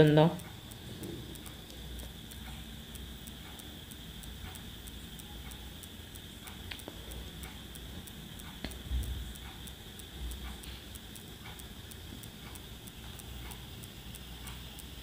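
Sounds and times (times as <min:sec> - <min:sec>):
soft ticks: 0:00.0 - 0:15.0
steady high whine: 0:00.0 - 0:15.0
light clicks: 0:00.4 - 0:15.0.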